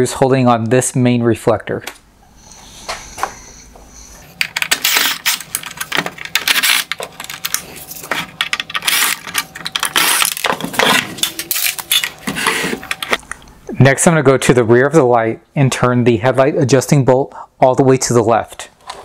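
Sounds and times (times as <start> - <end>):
screws rattling against plastic: 4.4 - 13.2.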